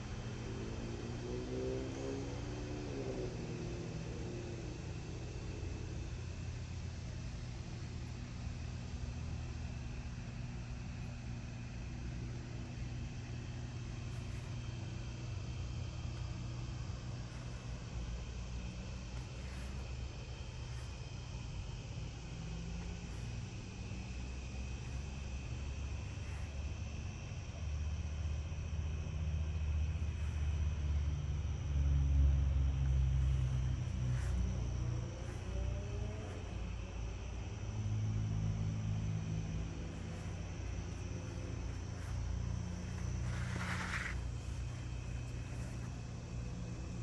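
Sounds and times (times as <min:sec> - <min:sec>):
low outdoor rumble: 0:00.0 - 0:47.0
steady low hum: 0:00.0 - 0:47.0
background hiss: 0:02.2 - 0:47.0
crickets chirring: 0:13.9 - 0:47.0.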